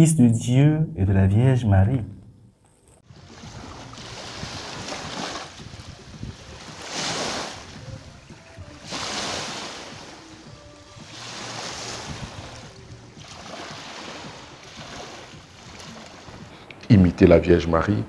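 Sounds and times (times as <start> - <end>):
water washing: 3.0 - 16.8
wind on microphone: 3.0 - 16.8.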